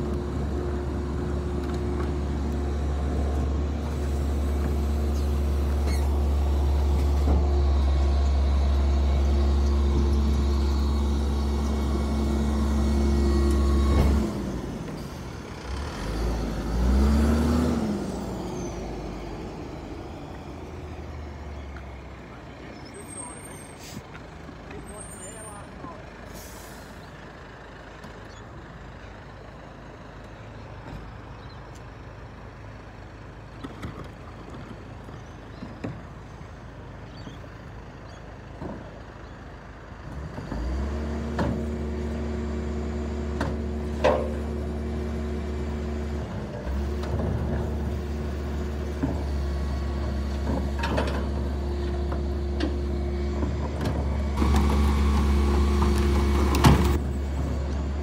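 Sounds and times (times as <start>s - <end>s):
garbage truck engine: 0.0s - 58.0s
hydraulics droning: 0.0s - 58.0s
wheelie bins clunking: 50.0s - 58.0s.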